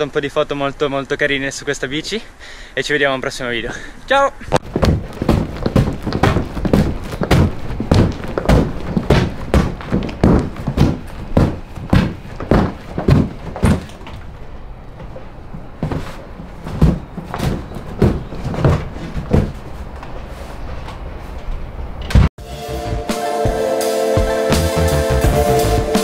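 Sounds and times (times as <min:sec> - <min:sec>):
thuds of hopping on tiled floor: 0:04.6 - 0:14.2, 0:15.8 - 0:19.6.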